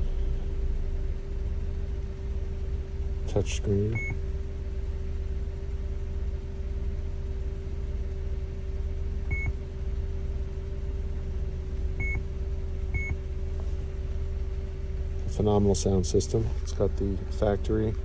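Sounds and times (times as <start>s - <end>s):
engine idling hum: 0.0s - 18.0s
car stereo beeping: 3.9s - 4.2s, 9.3s - 9.6s, 12.0s - 12.2s, 12.9s - 13.2s.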